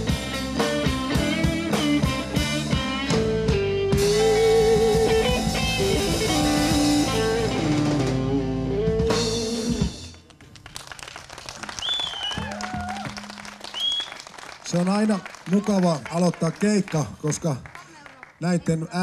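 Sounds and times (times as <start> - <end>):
blues-rock band playing: 0.0 - 10.3
guitar line with bent notes: 0.0 - 10.3.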